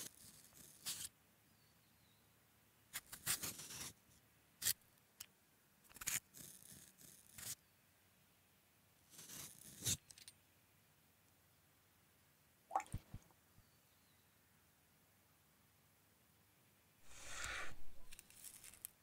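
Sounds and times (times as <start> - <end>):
peeler scraping potato skin: 3.0 - 3.9, 5.9 - 7.6, 18.1 - 18.9.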